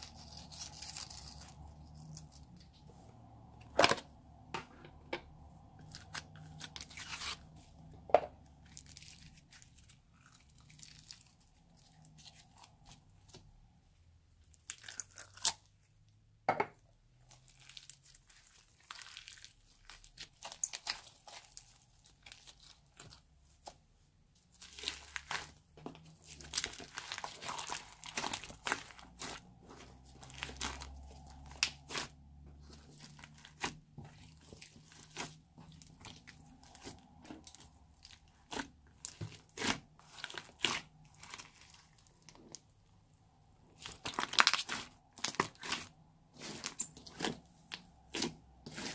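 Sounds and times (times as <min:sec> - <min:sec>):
bead slime crackling: 0:17.2 - 0:23.2, 0:24.5 - 0:42.7, 0:43.7 - 0:48.9.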